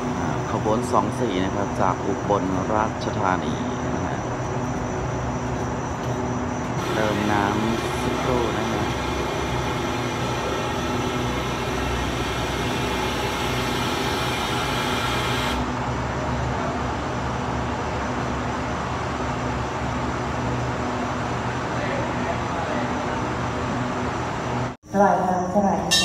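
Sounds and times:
train mechanical hum: 0:00.0 - 0:26.0.

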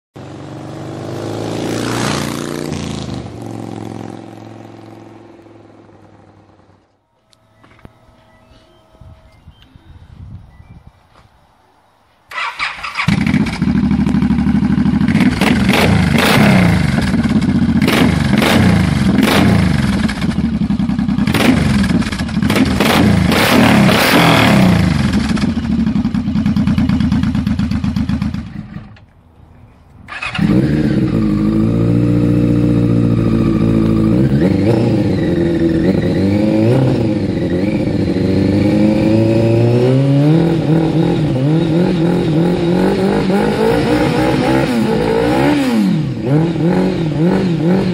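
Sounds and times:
motorcycle engine revving: 0:00.2 - 0:07.0, 0:12.3 - 0:29.0, 0:30.1 - 0:47.9
motorcycle engine blipped: 0:00.4 - 0:10.9, 0:12.3 - 0:29.0, 0:30.1 - 0:47.9.

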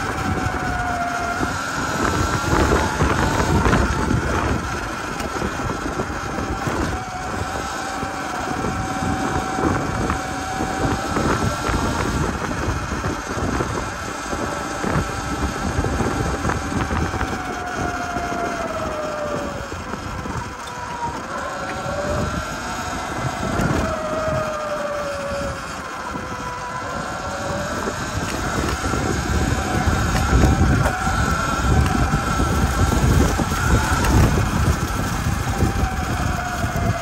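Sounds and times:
electric motor whining: 0:00.0 - 0:37.0
wind buffeting microphone: 0:00.0 - 0:37.0.

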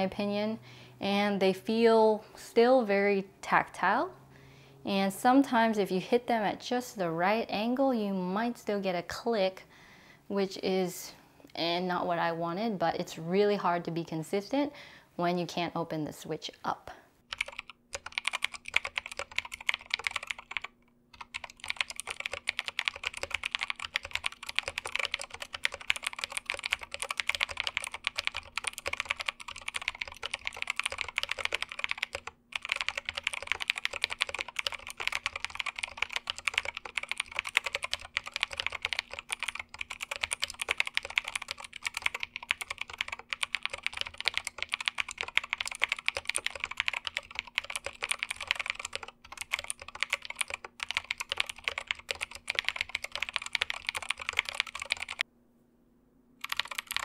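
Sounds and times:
mechanical keyboard typing: 0:17.3 - 0:55.2, 0:56.4 - 0:57.0.

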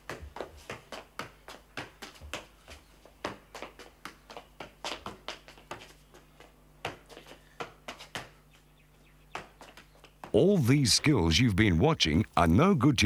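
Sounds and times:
ball juggling touches: 0:00.0 - 0:08.4.

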